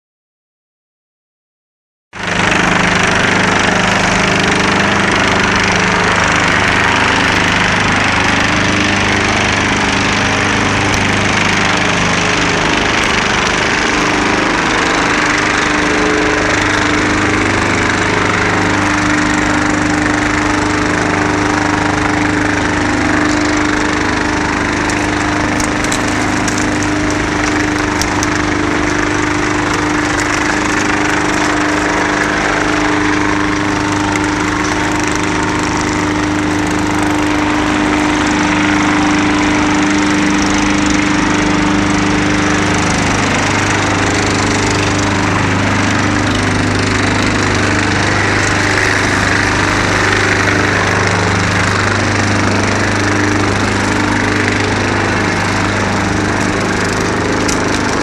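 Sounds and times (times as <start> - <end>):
wood chipper running: 2.1 - 58.0
sharp cracks: 19.1 - 38.5, 56.0 - 58.0.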